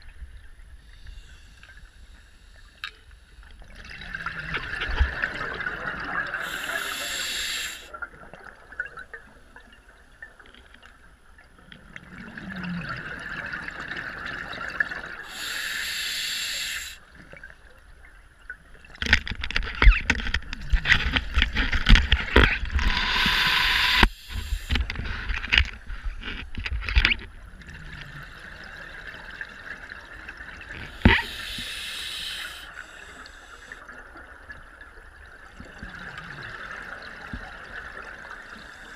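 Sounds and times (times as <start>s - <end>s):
exhaled bubbles underwater: 3.6s - 10.4s, 11.8s - 15.4s
diver breathing through regulator: 6.4s - 7.9s, 15.3s - 17.0s, 22.7s - 25.2s, 30.8s - 33.8s.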